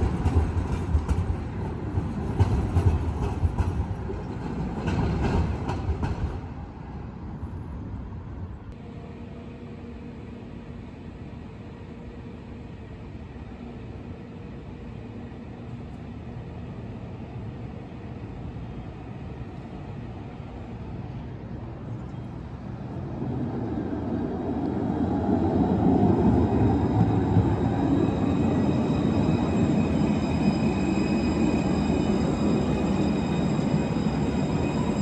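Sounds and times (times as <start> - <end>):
tram wheels rolling on rails: 0.0 - 6.9, 21.9 - 35.0.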